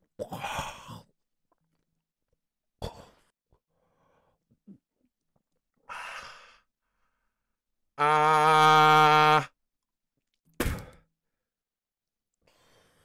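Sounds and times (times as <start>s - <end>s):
man retching and groaning: 8.0s - 9.5s.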